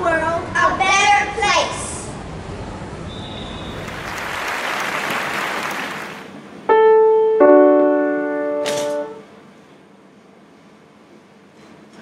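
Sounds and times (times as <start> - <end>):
grand piano note and chord: 6.7 - 9.3.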